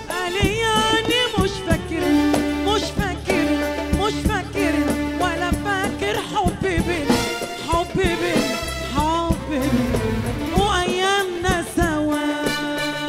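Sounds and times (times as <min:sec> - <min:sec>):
hand drums: 0:00.0 - 0:12.5
woman singing into microphone: 0:00.0 - 0:13.0.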